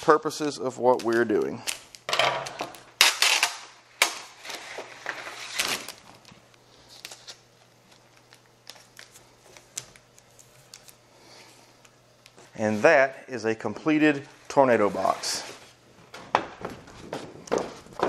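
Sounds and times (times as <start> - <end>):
tape ripping off roll: 2.4 - 6.3.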